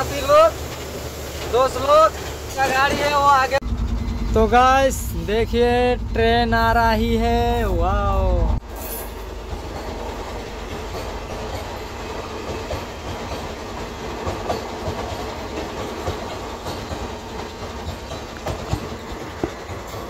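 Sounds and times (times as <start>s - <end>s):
truck engine running: 3.6s - 8.6s
train wheels clattering: 8.7s - 20.0s.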